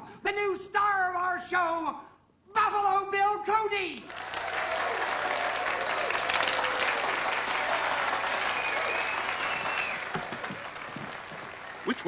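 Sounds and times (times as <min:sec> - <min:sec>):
audience applauding: 0:04.1 - 0:12.0
faint whistle: 0:08.5 - 0:10.0.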